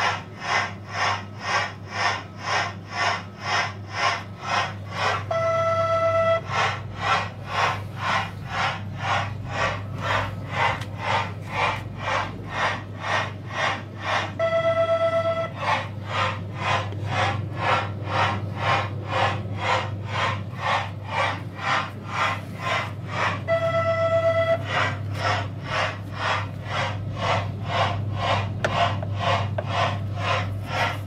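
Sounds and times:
steady low hum: 0:00.0 - 0:31.0
steam train chuffing effect: 0:00.0 - 0:31.0
train whistle tone: 0:05.2 - 0:06.8, 0:14.4 - 0:15.6, 0:23.4 - 0:25.0.

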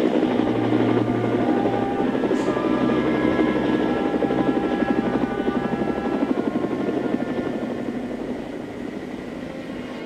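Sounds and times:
model helicopter rotor beating: 0:00.0 - 0:09.8
low hum: 0:00.0 - 0:10.0.

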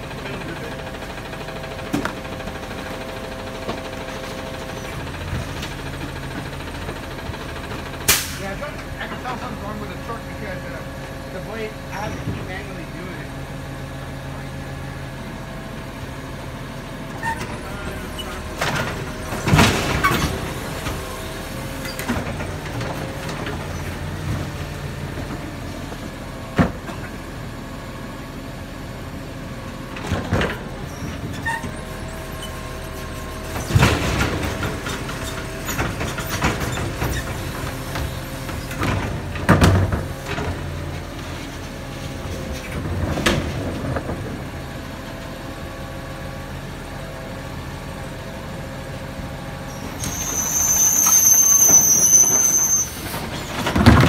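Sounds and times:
truck engine running: 0:00.0 - 0:50.6
trash cart banging on metal: 0:53.4 - 0:54.0.

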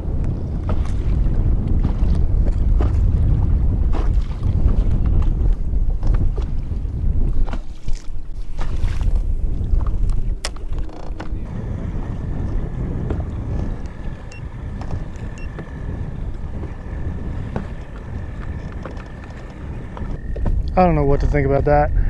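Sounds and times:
wind rumbling on microphone: 0:00.0 - 0:22.0
boat motor whine: 0:09.4 - 0:21.0.

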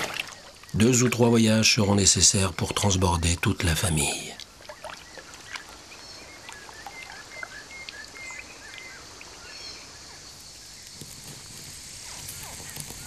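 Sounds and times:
bird chirps: 0:04.7 - 0:11.0
steady high hiss: 0:07.2 - 0:13.0.

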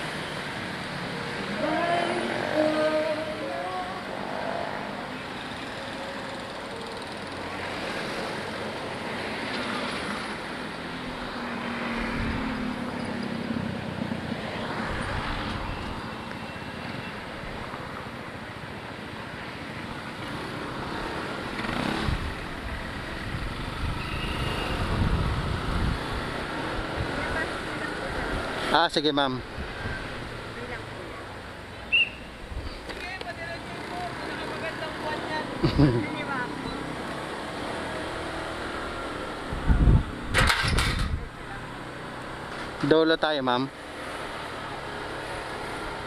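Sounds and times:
cars passing close by: 0:00.0 - 0:46.0
road and engine noise: 0:00.0 - 0:46.0.

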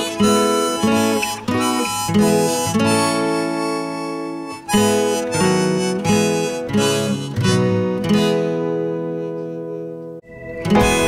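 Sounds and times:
slow instrumental melody: 0:00.0 - 0:11.0
chordal accompaniment: 0:10.2 - 0:11.0.

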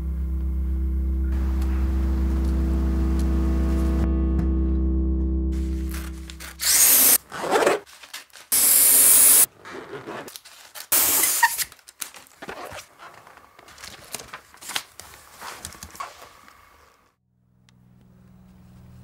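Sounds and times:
paper rustling: 0:07.3 - 0:08.6, 0:09.5 - 0:16.6.

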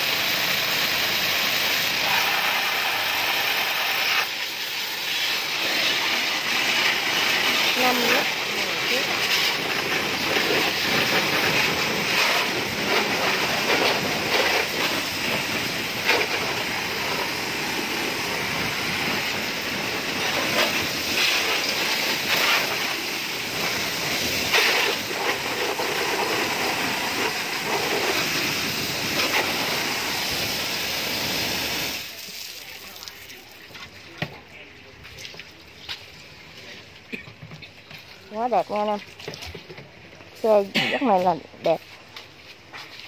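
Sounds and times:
water jet hissing: 0:00.0 - 0:33.7.

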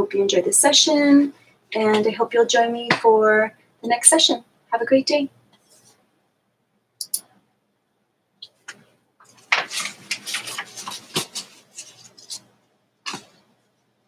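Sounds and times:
sharp click: 0:07.0 - 0:07.3.

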